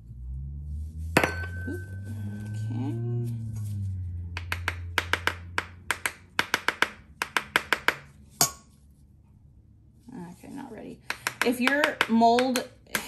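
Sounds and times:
knife tapping metal mold: 4.4s - 8.6s, 11.0s - 13.0s.

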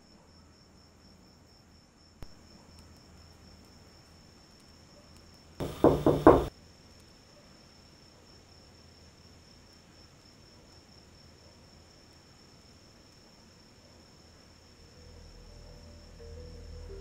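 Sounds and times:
cricket trill: 0.0s - 17.0s
loud knocks on door: 5.6s - 6.5s.

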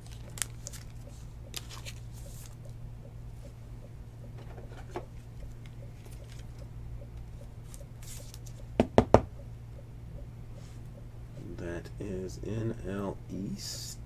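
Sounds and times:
plastic rustling: 0.0s - 2.6s
steady low hum: 0.0s - 14.0s.

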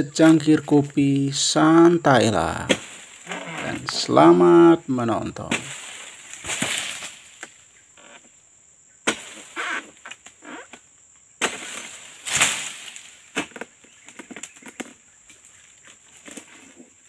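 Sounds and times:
leafy rustling: 0.0s - 8.2s, 11.4s - 17.0s
insects droning: 0.0s - 17.0s
sickle chopping strikes: 2.6s - 3.0s, 5.4s - 7.6s, 9.0s - 9.5s, 11.4s - 14.9s.

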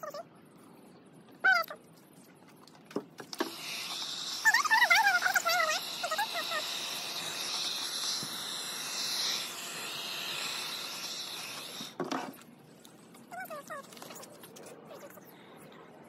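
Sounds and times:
heat gun blowing hot air: 3.4s - 12.0s.

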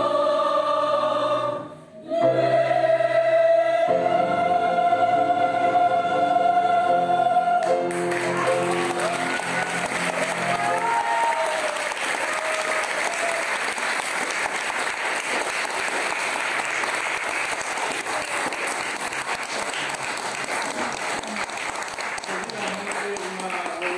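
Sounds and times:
soprano and choir singing: 0.0s - 11.6s
audience applauding: 7.6s - 23.9s.

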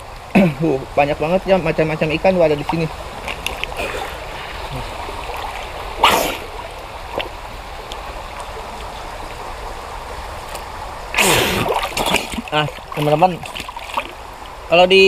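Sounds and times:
river water running: 0.0s - 15.0s
water splash: 2.6s - 7.4s, 10.6s - 14.2s.

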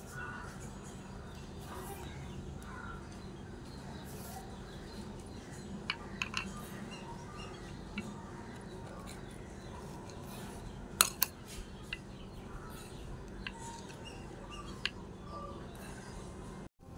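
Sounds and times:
faint birds calling: 0.0s - 16.7s.

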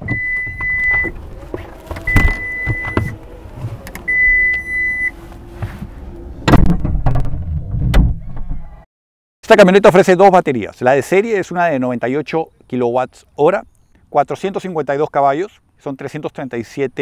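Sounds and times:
electronic warning beeps: 0.0s - 1.2s, 2.1s - 3.2s, 4.0s - 5.2s.

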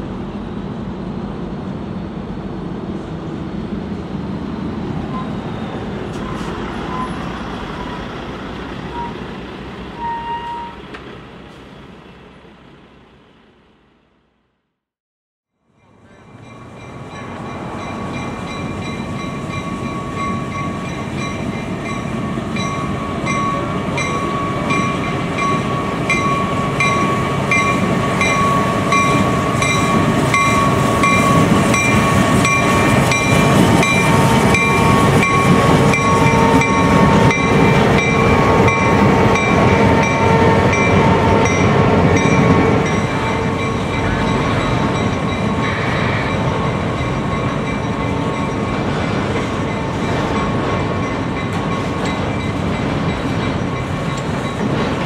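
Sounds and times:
diesel locomotive engines: 0.0s - 14.7s, 15.5s - 55.0s
locomotive bell ringing: 15.7s - 55.0s.

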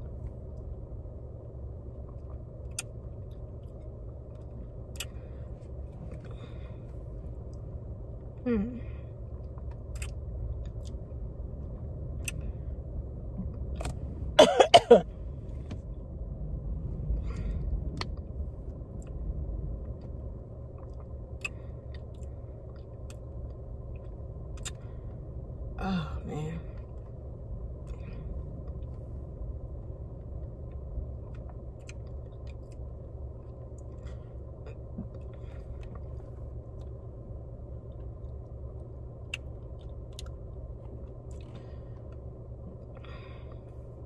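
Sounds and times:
low rumble: 0.0s - 44.0s
person coughing: 14.4s - 15.1s.

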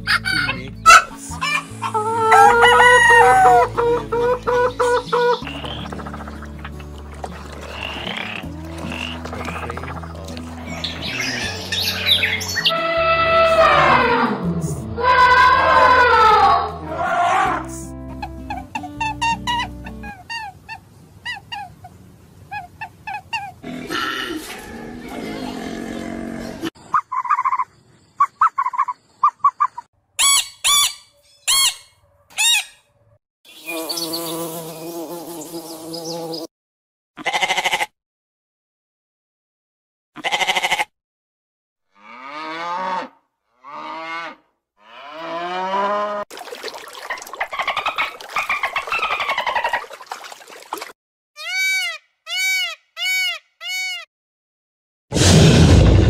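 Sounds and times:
loud dinosaur roar: 12.8s - 17.6s, 55.2s - 56.0s
goats bleating: 37.2s - 37.9s.

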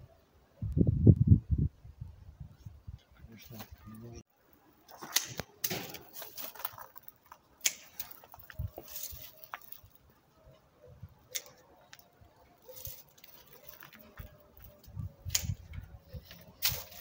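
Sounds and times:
pruning shears snipping branches: 4.9s - 6.6s, 7.6s - 9.9s, 11.3s - 12.0s, 12.6s - 17.0s.

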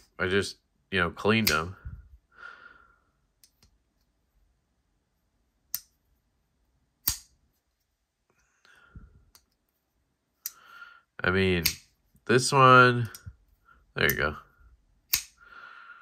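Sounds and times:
breathing: 2.3s - 3.2s, 8.3s - 9.3s, 10.4s - 11.2s, 15.4s - 16.0s.

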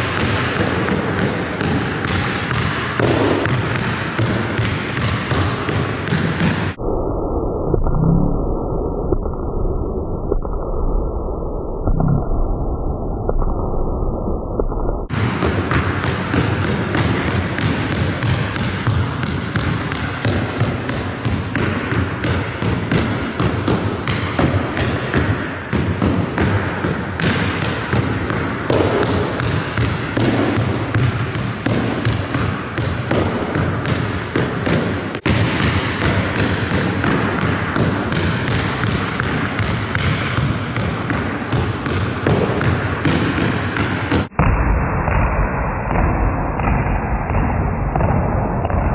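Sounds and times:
basketballs bouncing on gym floor: 0.0s - 6.8s, 15.1s - 44.3s, 45.9s - 48.9s.

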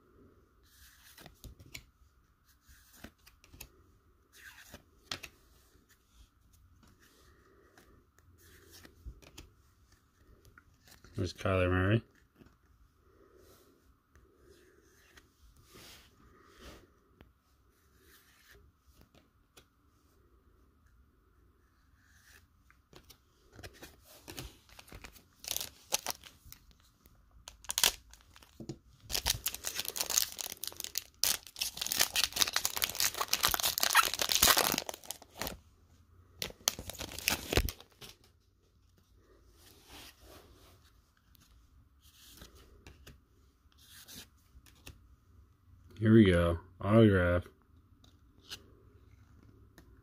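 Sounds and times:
wrapper crinkling and tearing: 24.7s - 26.4s, 27.4s - 35.6s, 36.4s - 38.2s.

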